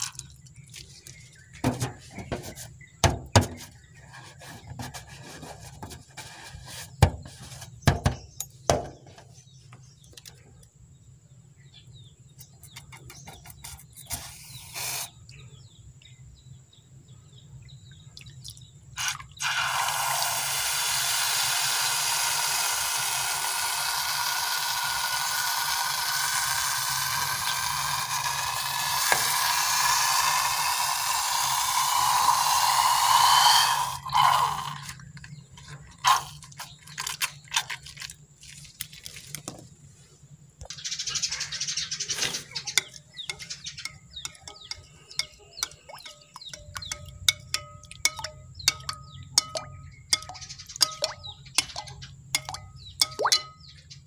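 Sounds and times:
rubber rubbing on balloon: 0:04.1 - 0:07.8
balloon deflating hiss: 0:14.2 - 0:15.1, 0:19.0 - 0:34.8, 0:36.0 - 0:36.4.

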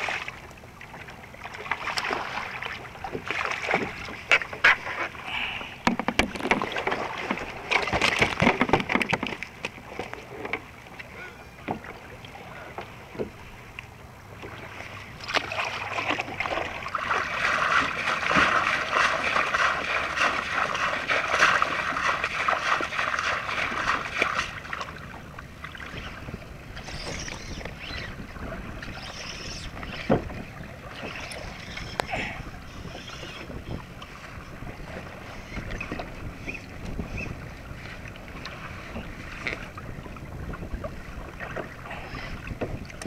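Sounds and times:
water splashing against kayak: 0:00.0 - 0:43.0
sharp knocks on hull: 0:05.8 - 0:06.9, 0:07.8 - 0:09.4.

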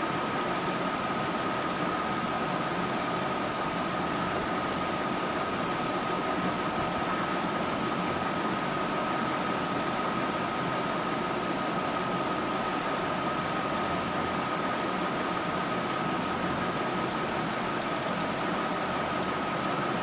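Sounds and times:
constant high-pitched tone: 0:11.3 - 0:18.0.

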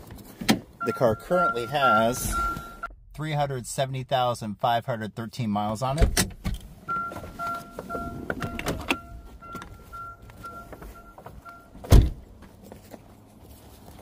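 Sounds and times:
car warning chime beeping: 0:00.8 - 0:03.0, 0:06.8 - 0:11.9
car door shutting: 0:06.0 - 0:09.8, 0:11.8 - 0:12.3.

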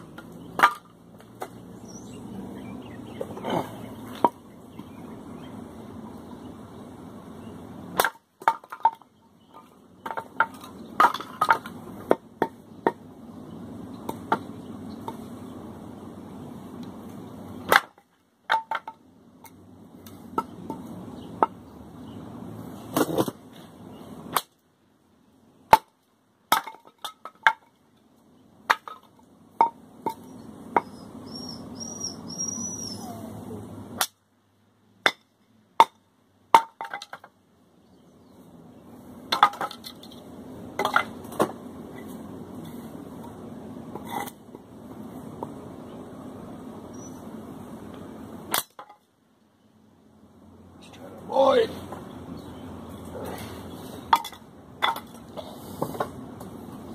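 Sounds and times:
machete chopping wood: 0:08.0 - 0:09.0, 0:17.7 - 0:18.9, 0:25.7 - 0:27.6.

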